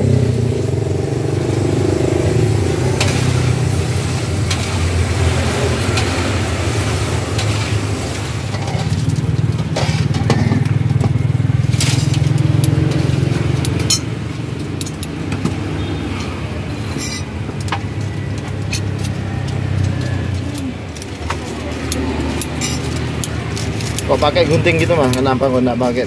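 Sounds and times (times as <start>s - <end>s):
metal clinks in a wok: 16.9s - 17.3s
scissors and tongs clicking on a plate: 17.0s - 24.0s.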